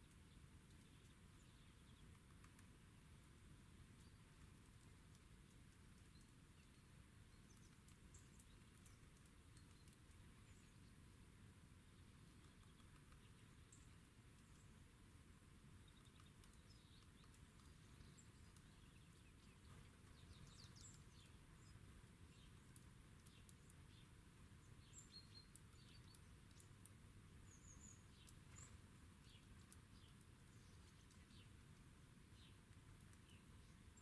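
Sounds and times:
low background noise: 0.0s - 34.0s
songbirds chirping: 0.0s - 34.0s
faint sharp clicks: 1.9s - 2.8s, 4.0s - 10.8s, 15.8s - 21.8s, 22.4s - 24.1s, 24.8s - 27.0s, 28.1s - 33.4s.

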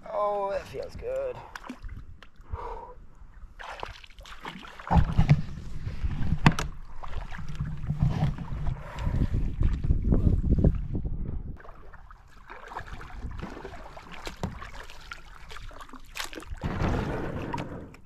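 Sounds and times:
water splashing against hull: 3.2s - 11.0s, 11.6s - 18.0s
paddle strokes in water: 3.6s - 9.9s, 11.6s - 17.7s
wind buffeting microphone: 4.9s - 11.6s.

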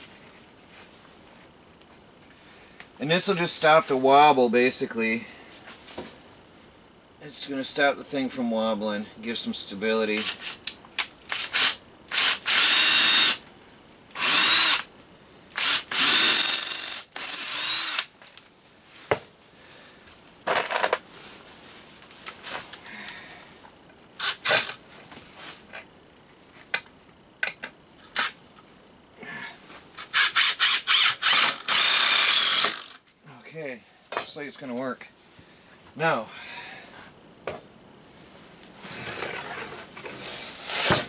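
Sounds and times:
cordless drill whining: 11.3s - 13.4s, 14.2s - 14.9s, 15.6s - 18.1s, 30.0s - 33.0s.

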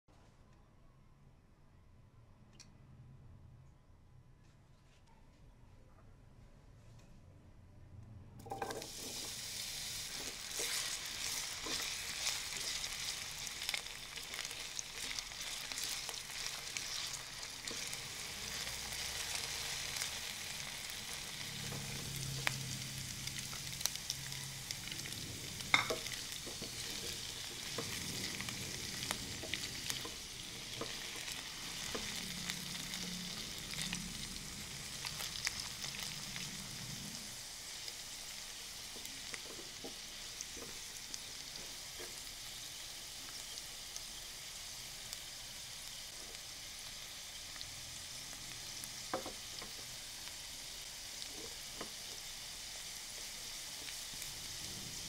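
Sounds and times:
crackling in frying pan: 8.4s - 55.0s
potatoes sizzling in hot oil: 8.4s - 55.0s
spatula stirring pan: 8.5s - 23.9s, 24.9s - 33.7s.

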